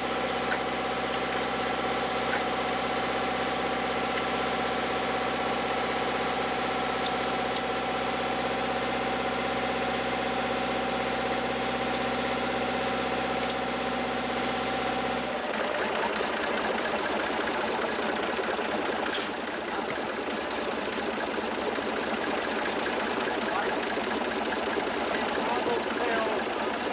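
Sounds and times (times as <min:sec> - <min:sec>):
helicopter turbine whine: 0:15.3 - 0:26.9.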